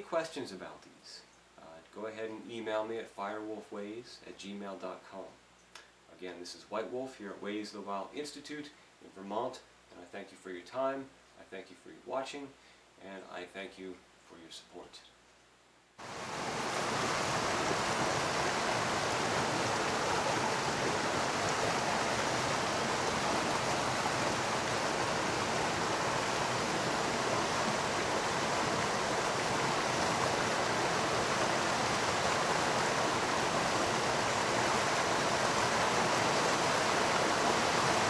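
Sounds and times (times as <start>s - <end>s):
creek water rushing: 16.0s - 38.0s.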